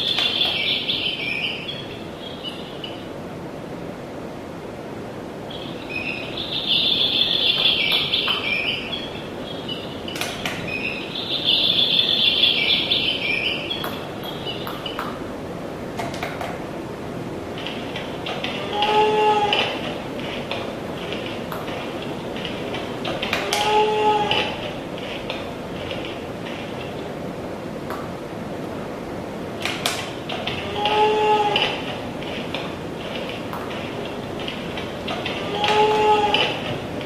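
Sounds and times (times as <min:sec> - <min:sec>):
recorded bird chirping from speaker: 0:00.0 - 0:03.2, 0:05.5 - 0:15.2.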